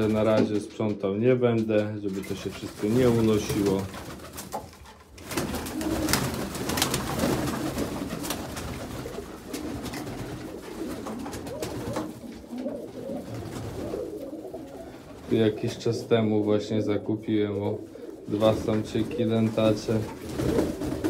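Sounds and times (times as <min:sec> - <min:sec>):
pigeons cooing: 0:05.4 - 0:16.8, 0:17.5 - 0:21.0.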